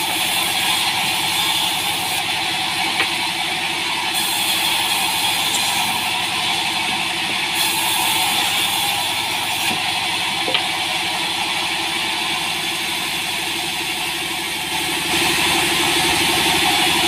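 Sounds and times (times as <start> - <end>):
band saw running: 0.0 - 17.0.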